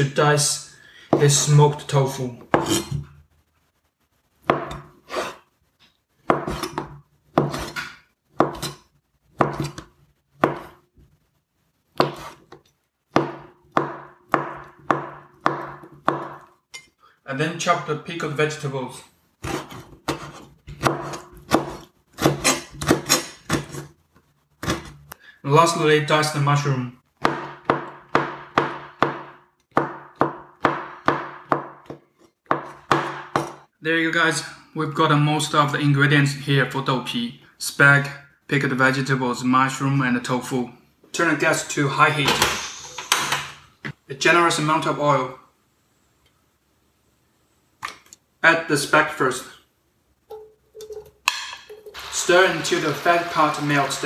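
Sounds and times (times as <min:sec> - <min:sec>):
knife chopping on cutting board: 0:04.4 - 0:05.3, 0:06.3 - 0:08.8, 0:09.4 - 0:10.8, 0:12.0 - 0:16.5, 0:19.4 - 0:23.9, 0:27.2 - 0:33.6.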